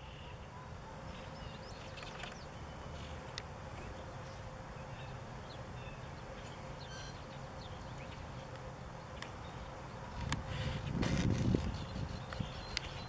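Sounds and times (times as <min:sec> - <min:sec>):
faint bird chirps: 0:00.0 - 0:08.4
bees humming: 0:00.0 - 0:13.0.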